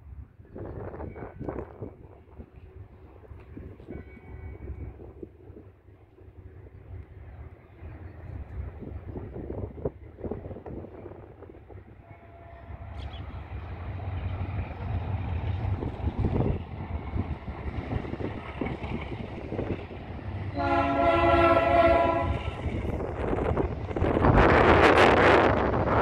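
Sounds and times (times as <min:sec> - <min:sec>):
diesel locomotive engine rumble: 0:00.0 - 0:26.0
train horn blast: 0:12.0 - 0:13.1, 0:20.5 - 0:22.6.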